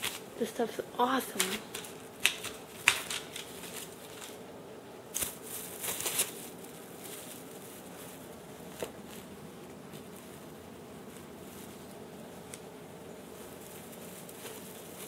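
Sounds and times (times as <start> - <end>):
handling rustles: 0.0 - 4.5, 5.1 - 15.0.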